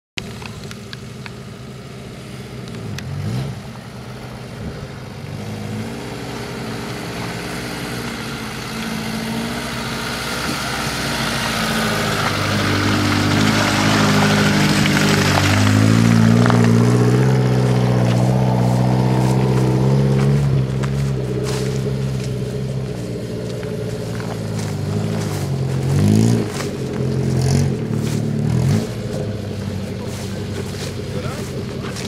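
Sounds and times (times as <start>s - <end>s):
off-road vehicle engine: 0.1s - 32.0s.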